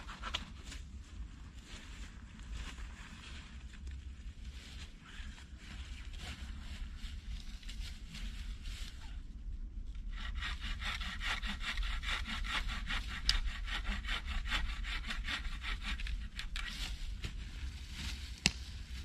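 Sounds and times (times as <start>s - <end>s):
hand saw cutting wood: 10.0s - 16.7s.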